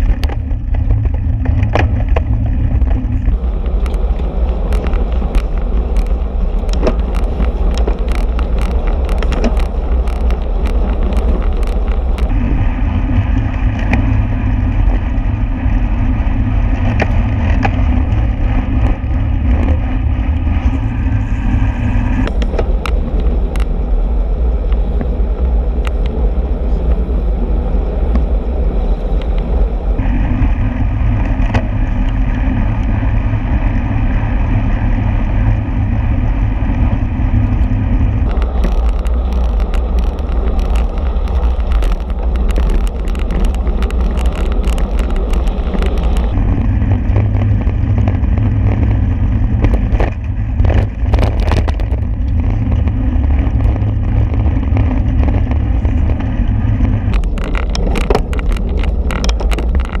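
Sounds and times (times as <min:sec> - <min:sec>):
rapid clicking and rattling: 0:00.0 - 0:23.8, 0:30.0 - 1:00.0
bicycle tyre and road noise: 0:00.0 - 1:00.0
wind buffeting microphone: 0:00.0 - 1:00.0.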